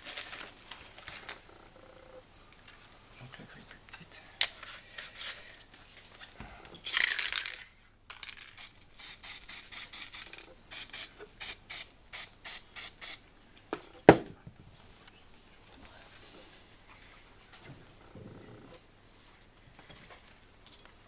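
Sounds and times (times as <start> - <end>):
aerosol spray can hissing: 8.5 - 13.2.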